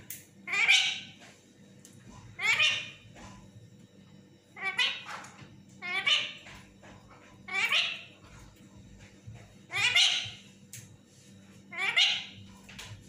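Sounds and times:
parakeet calling: 0.5s - 1.2s, 2.4s - 3.0s, 4.6s - 6.5s, 7.5s - 8.3s, 9.7s - 10.5s, 11.7s - 12.4s.

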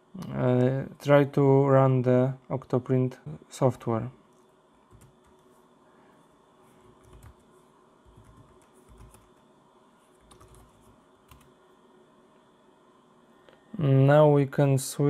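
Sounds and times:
computer keyboard typing: 4.9s - 5.5s, 7.0s - 9.4s, 10.2s - 11.5s.

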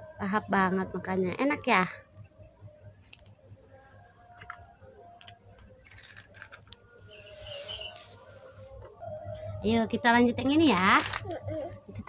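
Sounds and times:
soft rustle: 7.0s - 8.9s.

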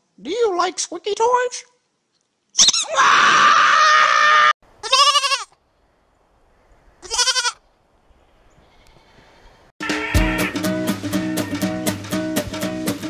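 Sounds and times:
goat bleating: 4.8s - 5.6s, 7.0s - 7.6s, 8.7s - 9.2s, 9.8s - 10.7s.

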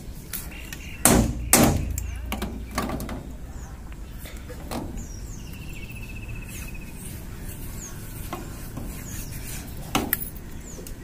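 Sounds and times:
sharp knocks: 1.0s - 3.2s.

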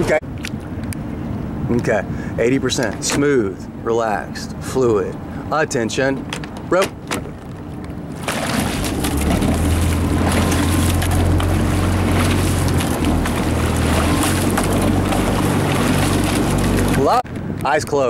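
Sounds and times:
wind on microphone: 6.2s - 18.0s
outboard motor running: 8.1s - 17.2s.

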